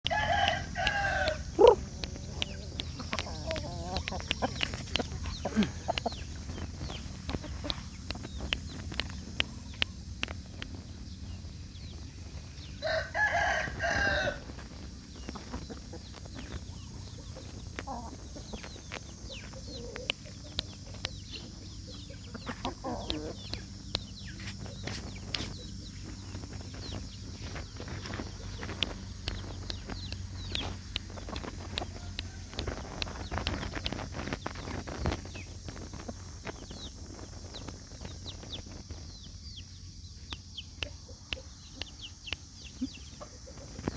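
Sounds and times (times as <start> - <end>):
rooster crowing: 0.0 - 2.4, 12.8 - 14.6, 31.8 - 33.0
chickens clucking: 0.2 - 43.9
short sharp clicks: 0.4 - 10.8.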